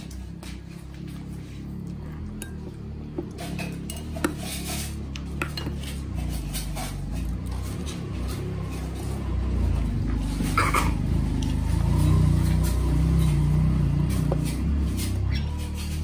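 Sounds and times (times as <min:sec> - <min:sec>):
spoon clinking against a bowl: 0:02.2 - 0:02.8, 0:03.4 - 0:04.7.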